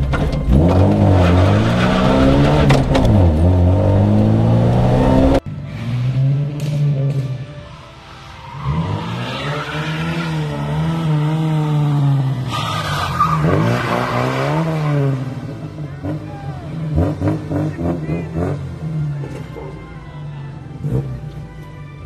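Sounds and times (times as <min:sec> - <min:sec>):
rally car engine revving: 0:00.0 - 0:07.5, 0:08.4 - 0:19.6
tyre squeal: 0:00.5 - 0:02.9.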